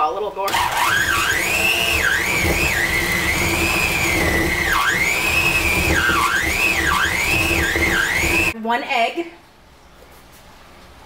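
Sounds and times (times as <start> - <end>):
electric hand mixer whine: 0.5 - 8.6.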